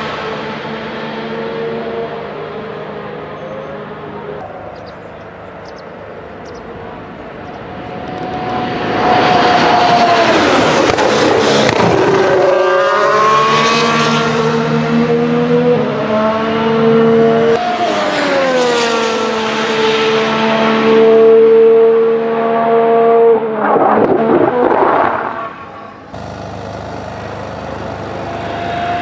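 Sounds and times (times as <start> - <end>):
racing car engine: 6.3 - 29.0.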